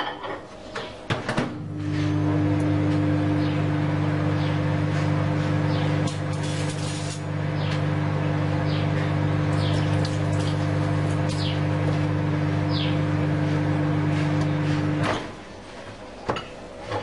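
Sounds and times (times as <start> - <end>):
microwave oven humming: 0.1 - 15.6
small birds chirping: 8.6 - 8.9, 9.6 - 9.9, 11.3 - 11.7, 12.7 - 13.0.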